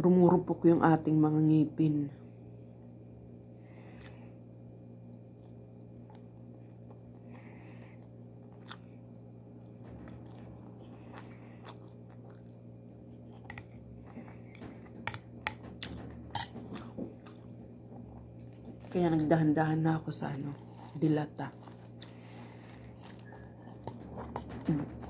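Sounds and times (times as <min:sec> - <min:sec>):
steady low hum: 0:00.0 - 0:25.0
close chewing: 0:08.0 - 0:09.1, 0:10.1 - 0:19.0, 0:20.3 - 0:24.8.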